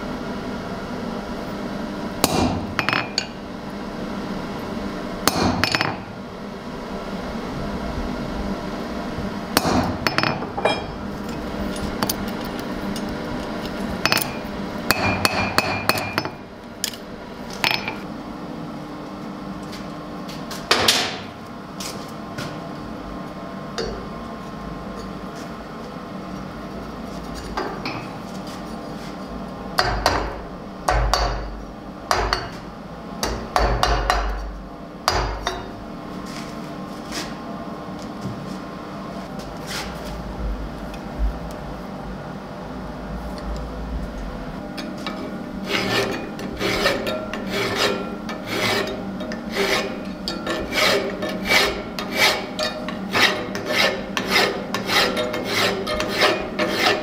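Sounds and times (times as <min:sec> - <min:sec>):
hammer striking steel on anvil: 0:02.2 - 0:03.4, 0:05.2 - 0:06.0, 0:09.6 - 0:11.0, 0:14.0 - 0:16.4, 0:29.8 - 0:31.5, 0:32.1 - 0:32.6, 0:33.2 - 0:34.5, 0:35.1 - 0:35.7.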